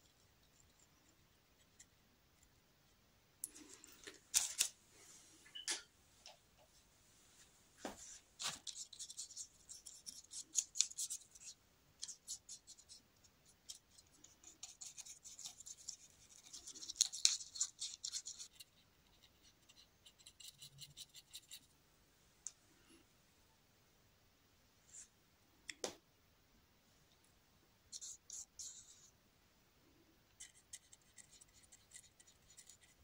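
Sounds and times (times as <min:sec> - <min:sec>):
paintbrush bristles scratching: 0:30.4 - 0:33.0.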